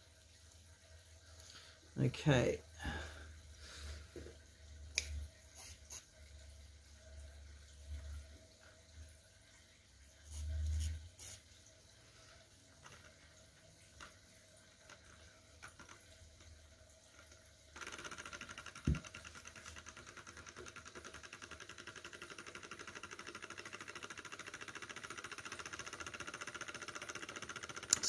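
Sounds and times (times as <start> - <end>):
model engine mechanical clatter: 17.8 - 28.0.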